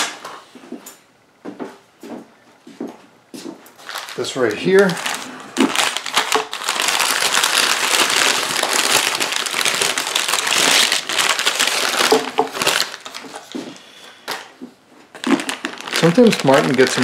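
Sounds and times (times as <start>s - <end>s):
packing paper rustling and crinkling: 3.8s - 17.0s.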